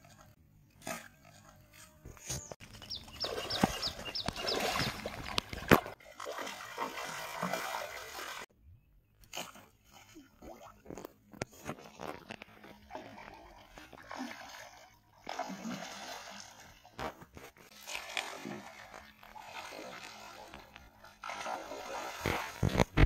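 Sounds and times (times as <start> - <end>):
fish splashing in water: 2.6 - 8.5, 12.6 - 23.0.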